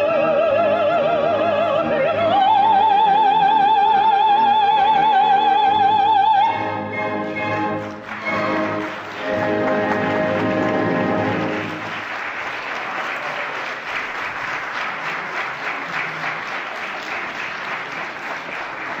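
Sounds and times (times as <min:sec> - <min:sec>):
opera singer with orchestra: 0:00.0 - 0:11.6
audience applause: 0:07.1 - 0:19.0.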